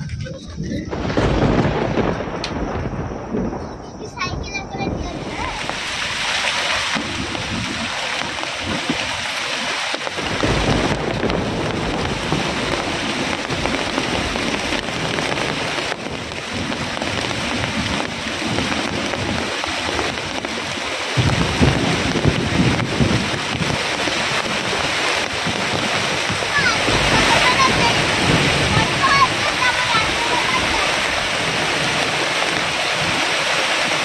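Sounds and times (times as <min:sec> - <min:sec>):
heavy rain pouring: 0:00.0 - 0:34.0
thunder rumbles: 0:00.0 - 0:34.0.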